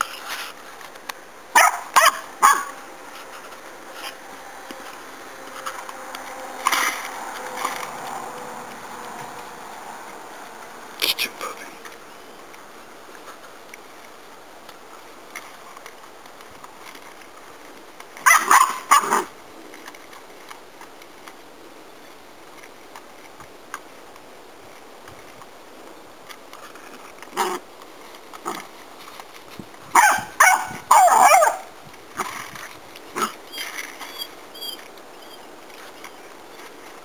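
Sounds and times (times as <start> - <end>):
puppy barking: 1.5 - 2.8, 18.2 - 19.3, 29.9 - 31.7.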